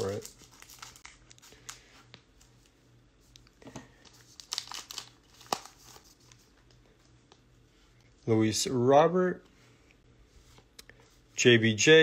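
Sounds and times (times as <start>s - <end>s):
wrapper crinkling: 0.0s - 1.8s, 4.0s - 6.8s.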